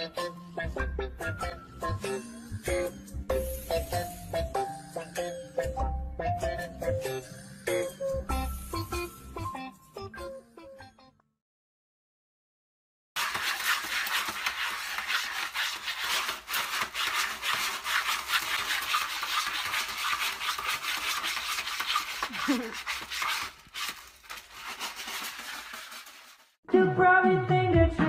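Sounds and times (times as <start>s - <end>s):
cat scratching in litter box: 13.2s - 26.6s.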